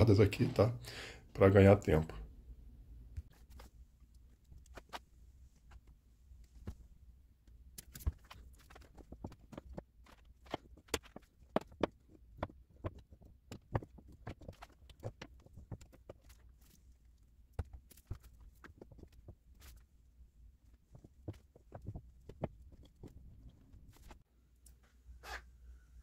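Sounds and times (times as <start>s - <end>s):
wooden blocks clicking and knocking: 7.8s - 16.8s.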